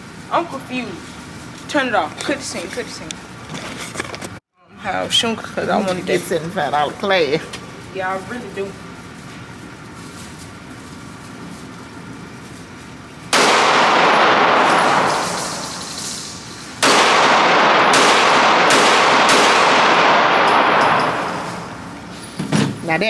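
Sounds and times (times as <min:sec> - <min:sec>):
pistol shots ringing indoors: 0:13.3 - 0:22.1.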